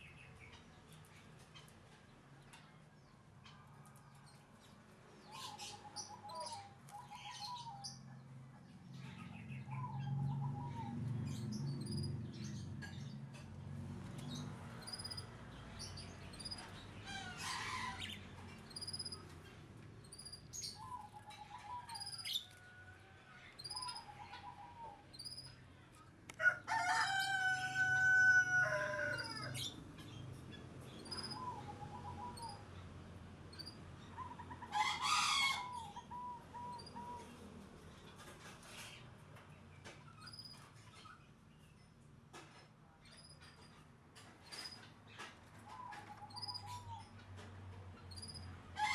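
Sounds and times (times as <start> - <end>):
birds chirping and calling: 3.4 - 26.0, 26.6 - 48.9
rooster crowing: 26.4 - 29.8.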